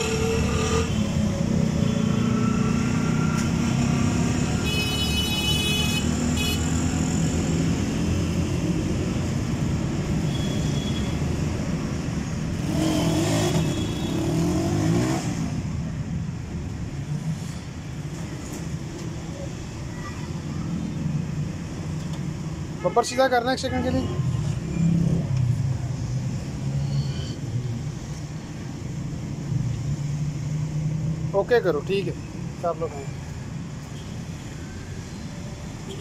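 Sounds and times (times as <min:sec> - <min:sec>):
engine revving: 0:00.0 - 0:01.0, 0:12.6 - 0:15.6.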